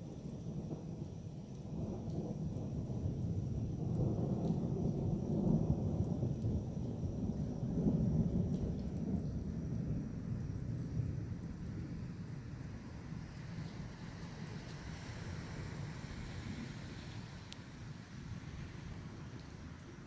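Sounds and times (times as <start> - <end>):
distant thunder rumbling: 0.0 - 14.5.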